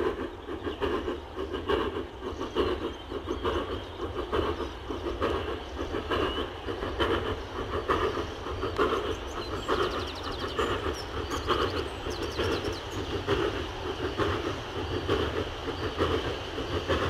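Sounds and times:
small birds chirping: 0.0s - 17.0s
steam locomotive exhaust beating: 0.0s - 17.0s.

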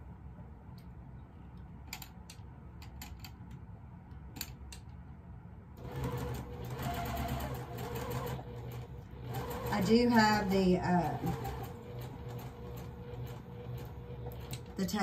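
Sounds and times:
sewing machine running: 5.8s - 15.0s.

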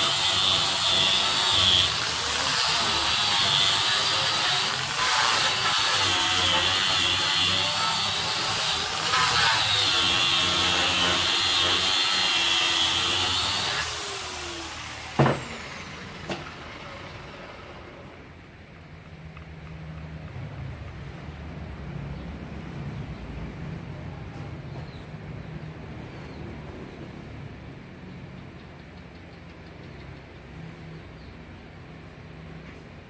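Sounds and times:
disc sander whining: 0.0s - 18.4s
tool set down knocks: 15.2s - 15.5s.

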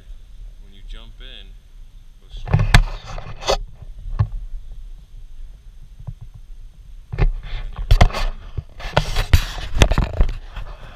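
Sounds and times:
camera rubbing and knocking: 2.4s - 4.4s, 6.0s - 6.5s, 7.1s - 10.9s.

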